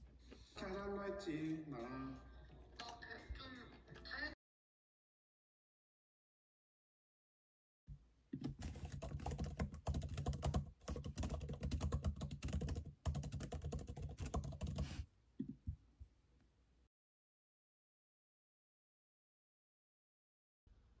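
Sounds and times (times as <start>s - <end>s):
laptop keyboard typing: 8.4s - 15.6s.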